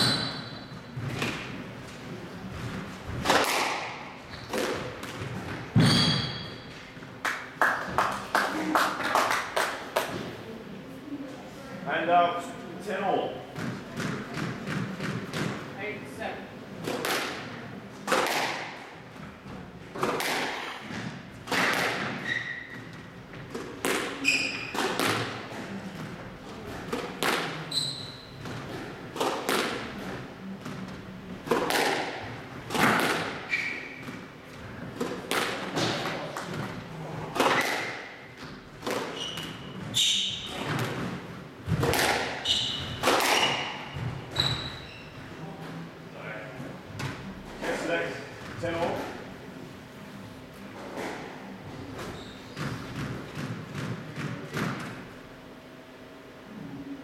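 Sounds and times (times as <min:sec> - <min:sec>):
shoes squeaking on court: 0:00.0 - 0:03.1, 0:04.2 - 0:07.0, 0:22.0 - 0:23.1, 0:24.2 - 0:24.9, 0:27.6 - 0:28.9, 0:33.4 - 0:34.2, 0:37.6 - 0:41.1, 0:42.4 - 0:45.3, 0:50.8 - 0:53.2
squash ball hit by rackets: 0:02.7 - 0:06.4, 0:13.6 - 0:15.6, 0:16.8 - 0:18.9, 0:19.9 - 0:27.8, 0:28.4 - 0:44.6, 0:52.5 - 0:55.0.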